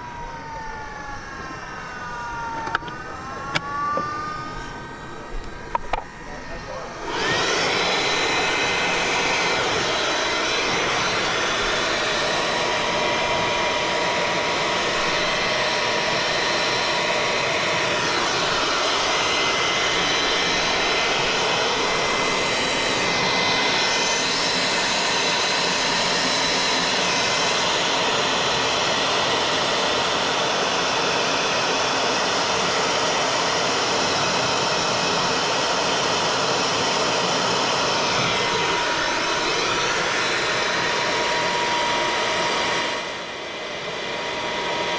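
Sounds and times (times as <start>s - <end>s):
leaf blower running: 0.0s - 44.9s.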